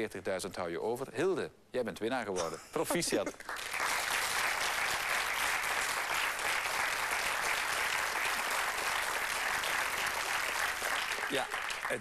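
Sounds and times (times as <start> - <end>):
audience applause: 3.4 - 12.0.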